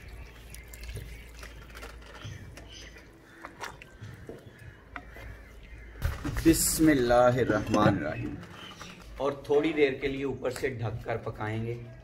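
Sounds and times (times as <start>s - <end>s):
water pouring into a pot: 0.0s - 2.1s.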